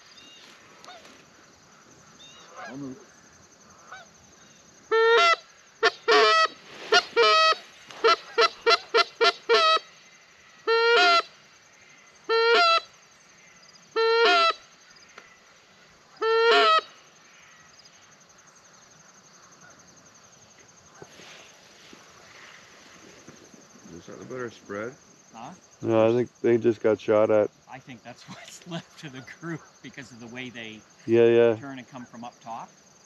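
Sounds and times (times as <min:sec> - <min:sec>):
crickets chirring: 0:00.0 - 0:33.0
goose call clucks and honks: 0:02.5 - 0:03.0, 0:04.9 - 0:09.9, 0:10.7 - 0:11.3, 0:12.3 - 0:12.9, 0:14.0 - 0:14.6, 0:16.2 - 0:16.9.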